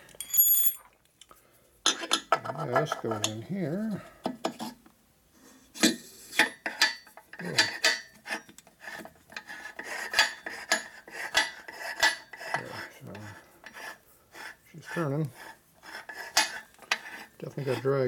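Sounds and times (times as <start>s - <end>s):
metal clinks and scraping: 0.0s - 1.0s.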